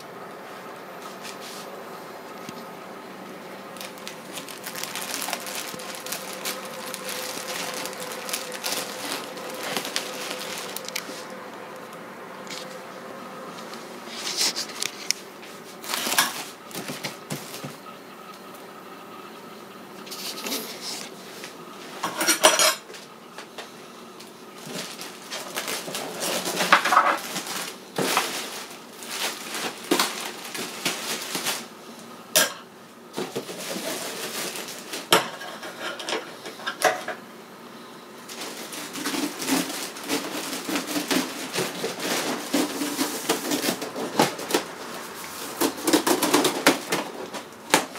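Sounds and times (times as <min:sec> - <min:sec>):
plastic wrap crinkling: 0:03.6 - 0:12.9, 0:13.6 - 0:17.7, 0:24.6 - 0:31.8, 0:33.2 - 0:35.2, 0:38.2 - 0:47.9.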